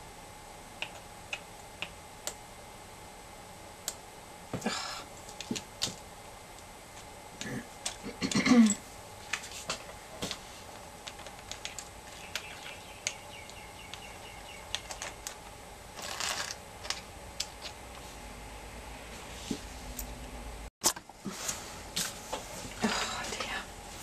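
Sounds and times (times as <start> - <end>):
seashells clicking and clattering: 11.0 - 14.0, 14.6 - 17.8.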